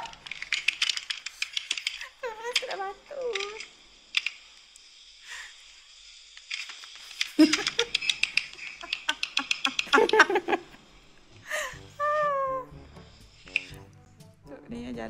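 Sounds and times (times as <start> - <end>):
man and woman laughing: 7.2 - 12.3.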